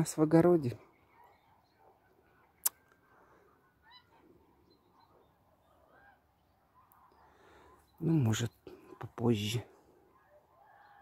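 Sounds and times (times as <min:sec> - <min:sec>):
distant geese honking: 0:01.0 - 0:07.9.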